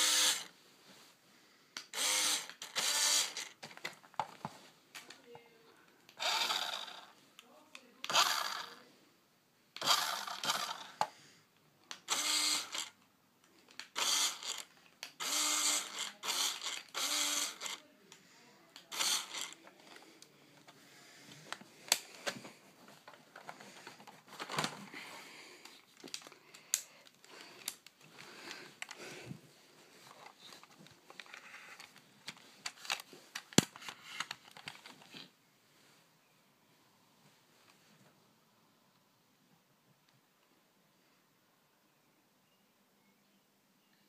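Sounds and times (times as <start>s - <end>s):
toy car motor whirring: 0.0s - 0.5s, 1.9s - 3.6s, 6.2s - 7.1s, 8.0s - 8.8s, 9.8s - 11.1s, 12.0s - 13.0s, 13.8s - 17.8s, 18.8s - 20.0s.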